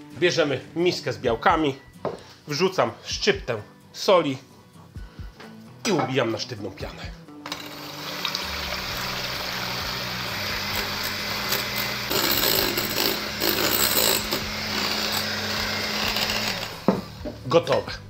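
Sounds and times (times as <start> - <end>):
electric hand mixer whisking: 7.5 - 17.2.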